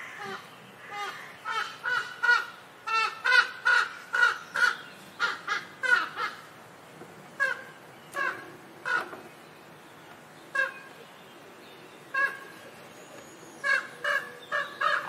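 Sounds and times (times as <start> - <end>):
crow cawing: 0.0 - 6.5, 13.6 - 15.0.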